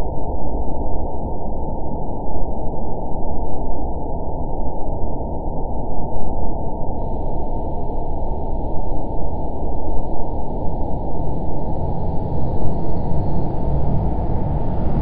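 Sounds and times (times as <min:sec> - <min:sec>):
synthetic hover engine rumble: 0:07.0 - 0:15.0.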